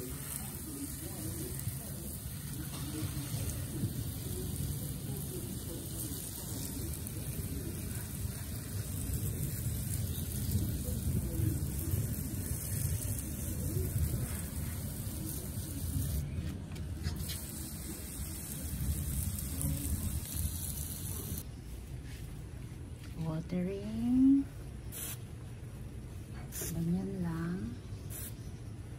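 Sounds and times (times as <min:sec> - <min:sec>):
water spraying from hose: 0:00.0 - 0:16.4, 0:17.0 - 0:21.4.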